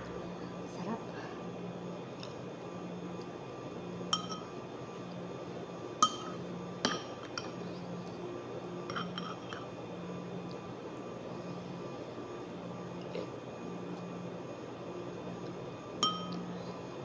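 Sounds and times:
metal spoon clinking ceramic bowl: 4.1 - 4.5, 8.9 - 9.6, 16.0 - 16.4.

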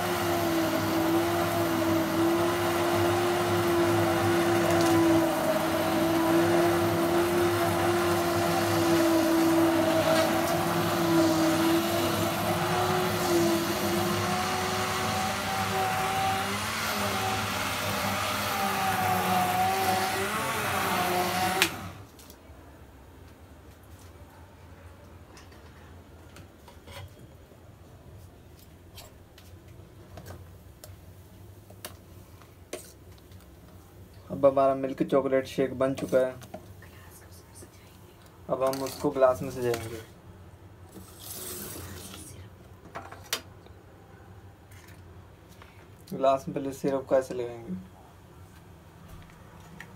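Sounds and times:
hand blender motor whine: 0.0 - 22.1.

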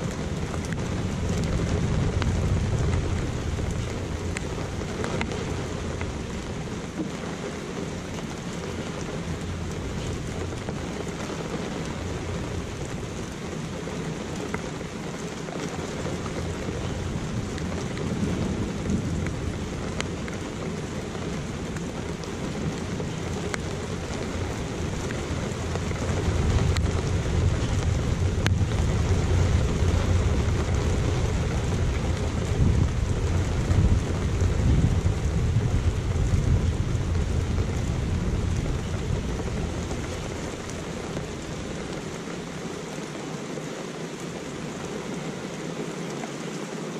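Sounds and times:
rolling thunder: 0.0 - 6.9, 16.1 - 42.3
steady rain: 0.0 - 46.9.

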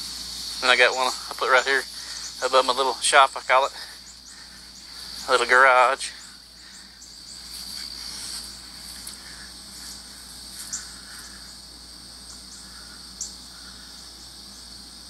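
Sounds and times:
insects trilling: 0.0 - 15.0.

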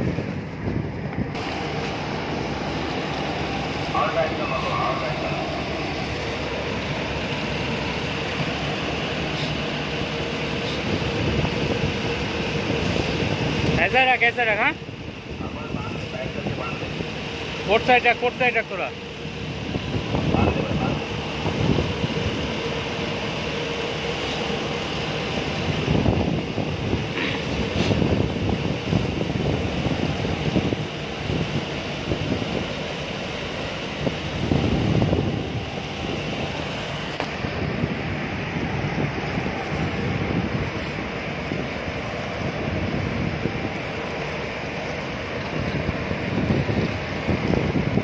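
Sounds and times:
boat engine rumbling: 0.0 - 48.0
water wash: 0.0 - 48.0
wind buffeting microphone: 0.0 - 48.0
water washing: 1.4 - 14.6.

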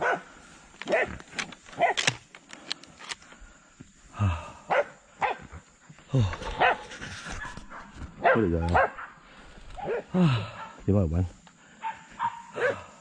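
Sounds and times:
dogs barking: 0.0 - 1.2, 1.8 - 2.0, 4.7 - 5.6, 6.5 - 9.2, 9.8 - 10.9, 11.8 - 12.9.

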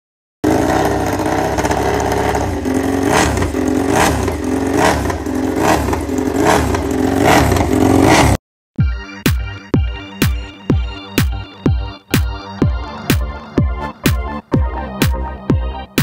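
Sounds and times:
motorcycle engine revving: 0.4 - 8.4.

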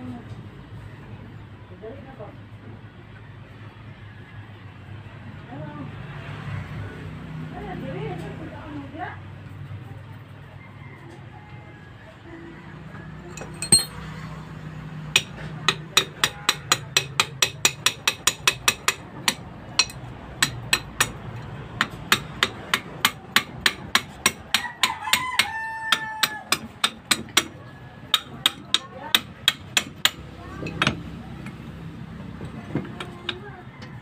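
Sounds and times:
rooster crowing: 10.4 - 13.1, 24.5 - 26.8, 33.4 - 34.0
wrench knocking on metal: 13.4 - 14.0, 15.1 - 21.2, 21.8 - 27.5, 28.1 - 31.0.

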